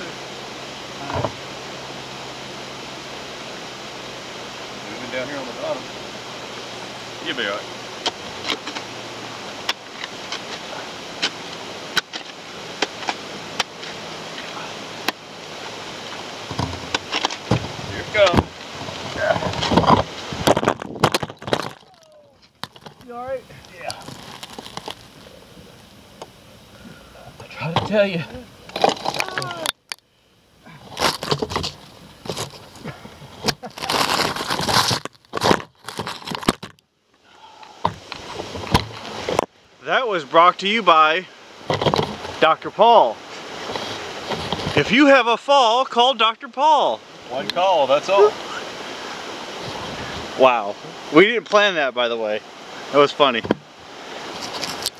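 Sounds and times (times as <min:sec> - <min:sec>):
steady background hiss: 0:00.0 - 0:54.9
brush and leaves crunching: 0:07.9 - 0:26.2, 0:30.7 - 0:36.8, 0:54.1 - 0:54.9.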